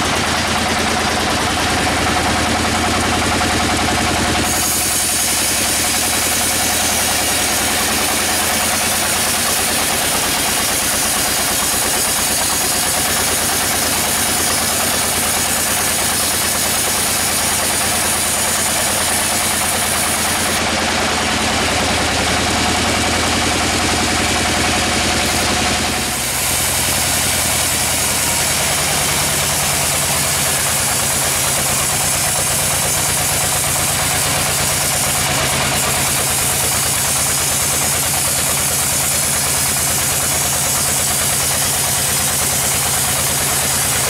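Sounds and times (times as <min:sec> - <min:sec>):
band saw cutting log: 0:00.0 - 0:44.0.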